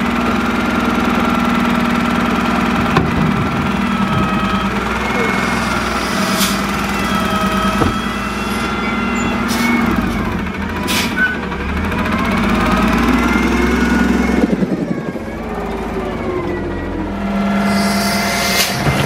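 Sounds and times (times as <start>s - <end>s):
truck engine humming: 0.0s - 19.0s
wavering high engine whine: 2.6s - 9.4s
air brake hisses: 5.4s - 6.8s, 17.6s - 19.0s.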